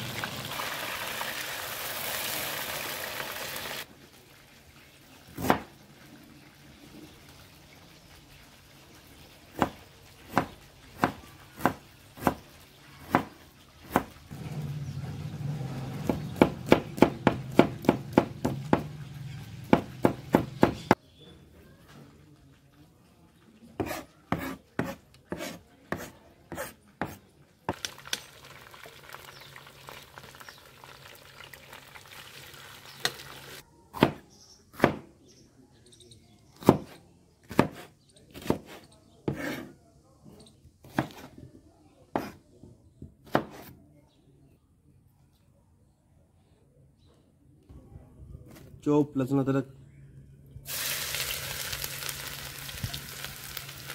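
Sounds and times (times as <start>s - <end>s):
knife chopping on plastic board: 9.6s - 12.4s, 23.8s - 27.2s, 34.0s - 35.1s, 36.6s - 39.7s, 40.8s - 41.3s, 42.2s - 42.4s, 43.2s - 43.7s.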